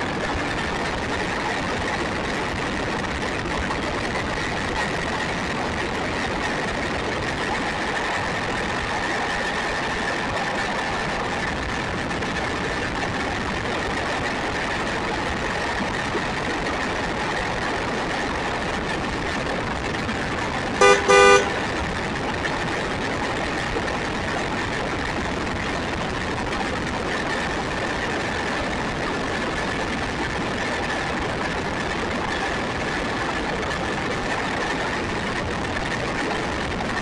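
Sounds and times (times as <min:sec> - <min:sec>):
car horn honking: 0:20.8 - 0:21.6.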